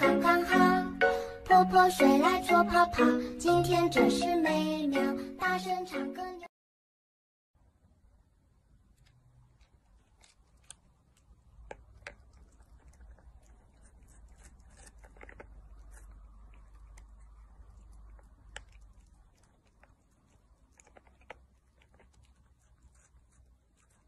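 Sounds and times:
low steady hum: 7.6s - 24.0s
cat licking: 8.9s - 24.0s.

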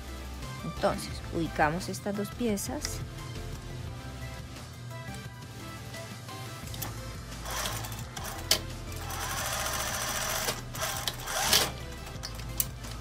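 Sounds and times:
sewing machine stitching: 7.5s - 11.8s.

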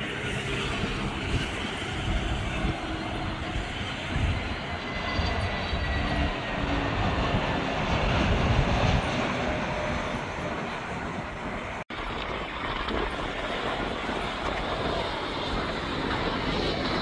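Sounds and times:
airliner jet engine rush: 0.0s - 17.0s.

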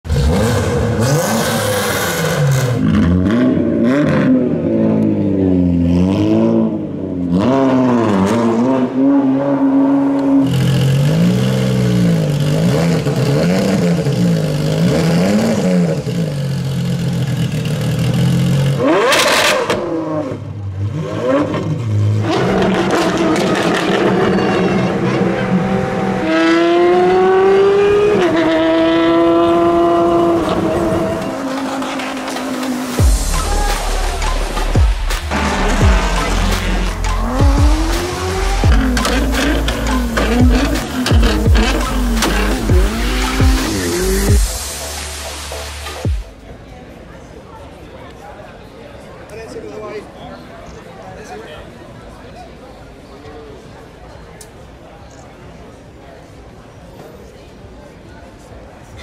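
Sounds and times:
car engine revving: 0.0s - 46.3s.

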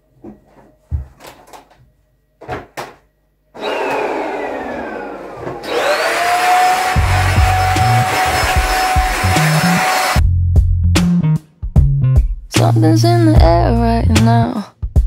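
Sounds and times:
vacuum cleaner on carpet: 3.6s - 10.2s
music with deep beat: 7.1s - 12.8s.

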